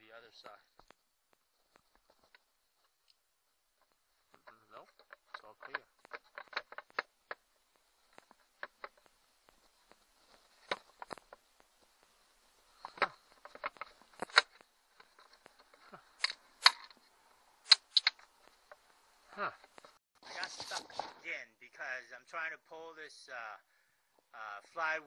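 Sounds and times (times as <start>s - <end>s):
screwdriver clicks and metal taps: 4.9s - 7.4s, 12.8s - 17.0s, 17.7s - 18.8s.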